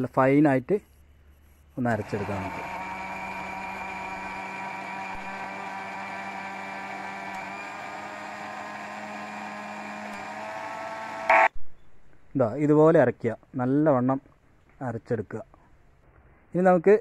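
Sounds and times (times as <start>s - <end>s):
mixer grinder whining: 1.9s - 11.5s.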